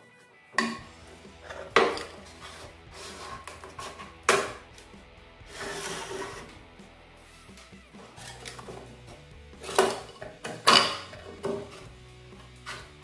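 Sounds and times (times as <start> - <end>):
plastic scraping and rubbing: 5.5 - 6.6.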